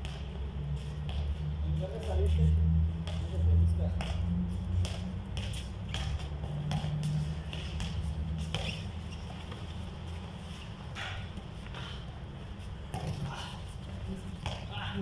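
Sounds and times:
players' footsteps: 0:00.0 - 0:15.0
basketball bouncing on concrete: 0:01.0 - 0:09.6, 0:12.8 - 0:15.0.

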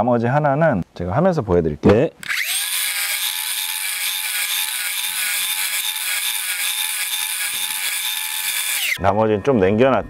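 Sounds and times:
miter saw whining: 0:02.2 - 0:09.1.

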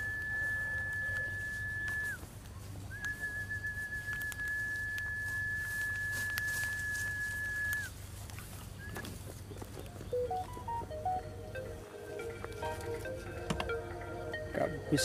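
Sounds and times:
high whistle-like tone: 0:00.0 - 0:02.2, 0:02.9 - 0:07.9.

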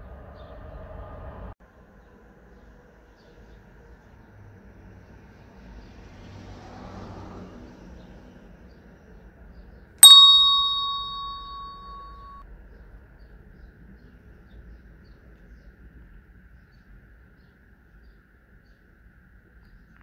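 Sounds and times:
faint street background: 0:00.0 - 0:20.0
notification bell ding: 0:10.0 - 0:12.4.

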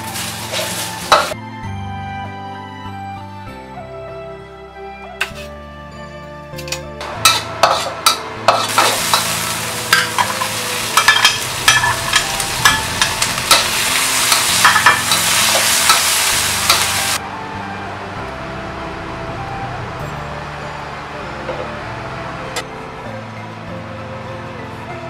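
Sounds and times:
oil sizzling in a wok: 0:00.0 - 0:01.4, 0:07.2 - 0:17.2
spatula scraping a wok: 0:00.0 - 0:01.4, 0:07.2 - 0:17.2.

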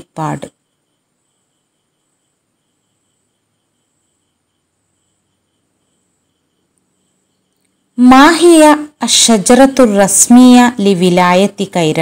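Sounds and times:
faint high chirping: 0:00.0 - 0:09.8.

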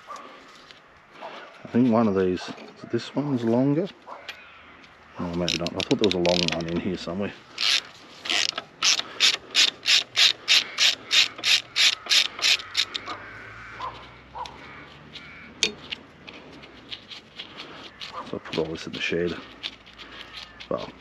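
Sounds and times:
socket ratchet clicking: 0:07.6 - 0:13.1.

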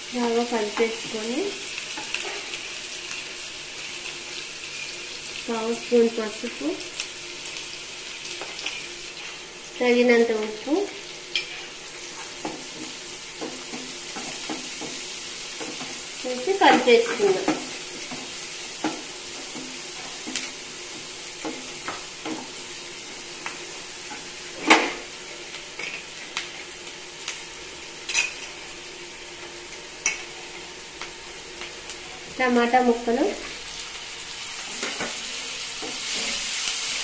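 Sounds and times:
onions sizzling in oil: 0:00.0 - 0:37.0
spatula scraping and tapping pan: 0:11.3 - 0:16.0, 0:16.7 - 0:22.6.

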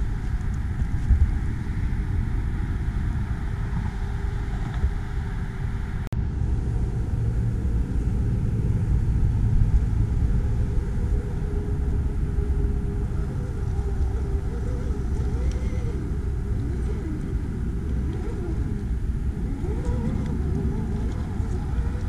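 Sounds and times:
low rumble: 0:00.0 - 0:22.0
small electric motor whine: 0:06.4 - 0:22.0.

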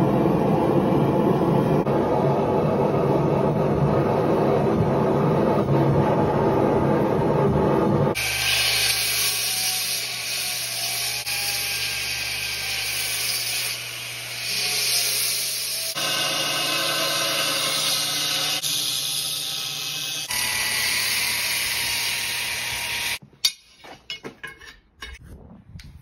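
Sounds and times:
belt grinder grinding steel: 0:08.2 - 0:23.2.

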